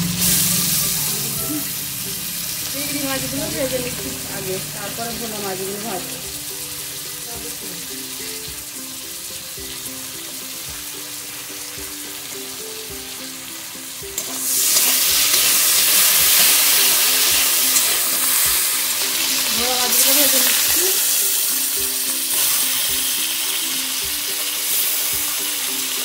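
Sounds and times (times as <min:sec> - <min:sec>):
shrimp sizzling in hot oil: 0:00.0 - 0:26.0
metal spatula stirring: 0:14.2 - 0:20.6.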